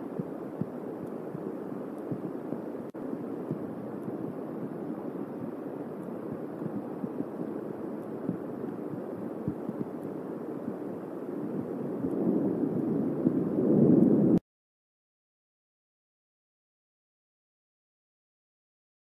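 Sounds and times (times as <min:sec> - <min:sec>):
thunder rumbling: 0:00.0 - 0:14.4.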